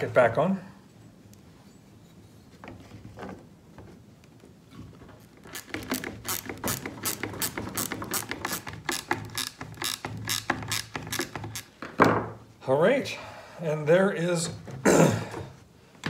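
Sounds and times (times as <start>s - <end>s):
ratcheting wrench clicking: 5.4s - 11.8s.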